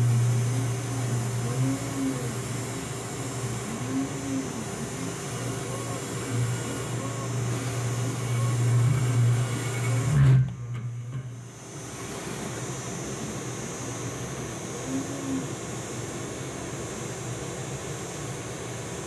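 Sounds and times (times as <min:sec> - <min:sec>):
end mill cutting steel: 0:00.0 - 0:11.4
spindle hum: 0:00.0 - 0:19.0.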